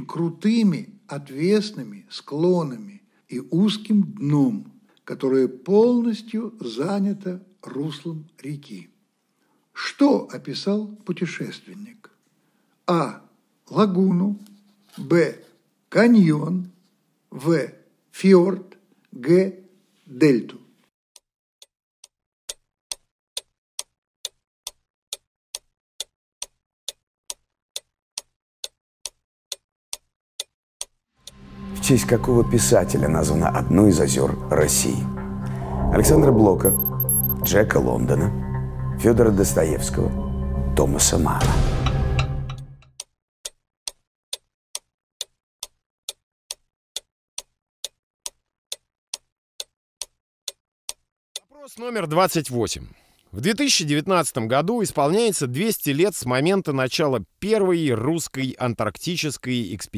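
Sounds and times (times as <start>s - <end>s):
clock ticking: 21.2s - 31.4s, 36.6s - 38.6s, 40.8s - 52.7s
countdown timer ticking: 31.3s - 42.8s.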